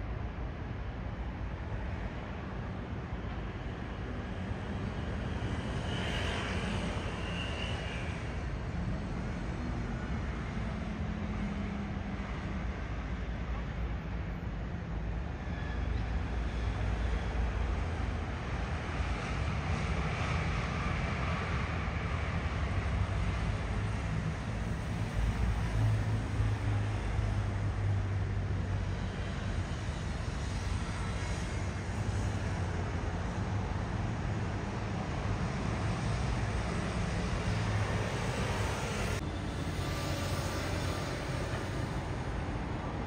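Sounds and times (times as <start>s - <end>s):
outdoor background noise: 0.0s - 43.0s.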